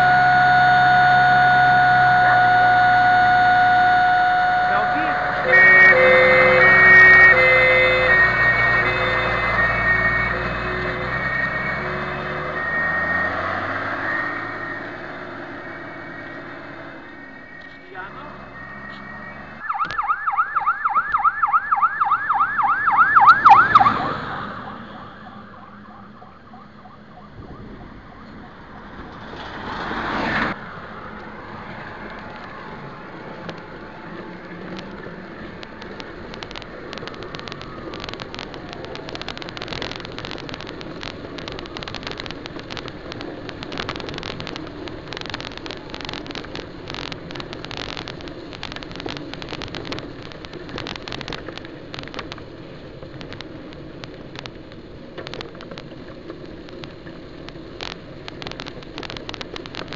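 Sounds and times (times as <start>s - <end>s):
fire engine siren yelping: 0.0s - 29.2s
rising rush: 0.0s - 34.0s
crackles: 0.0s - 59.9s
wind and road noise: 0.0s - 59.9s.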